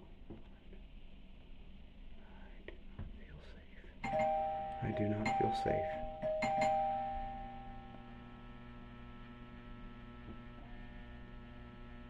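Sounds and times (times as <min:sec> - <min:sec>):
steady electrical hum: 0:00.0 - 0:12.0
two-tone doorbell chime: 0:04.0 - 0:08.3.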